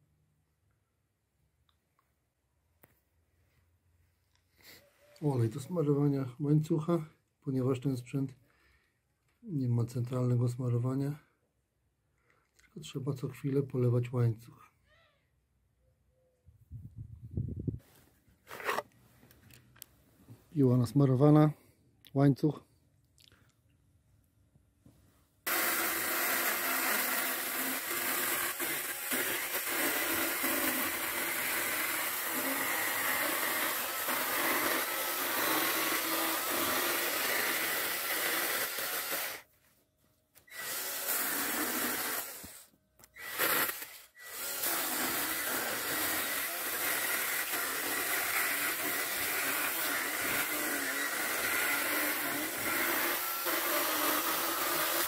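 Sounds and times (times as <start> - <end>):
electric chainsaw cutting wood: 25.5 - 39.5, 40.4 - 55.0.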